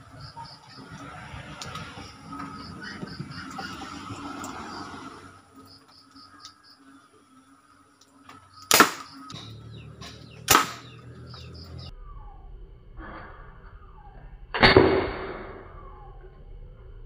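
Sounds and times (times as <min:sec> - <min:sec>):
loud gunshot crack: 0:08.7 - 0:09.5, 0:10.5 - 0:11.0, 0:14.6 - 0:15.7
toy gun sharp pops: 0:08.7 - 0:10.8.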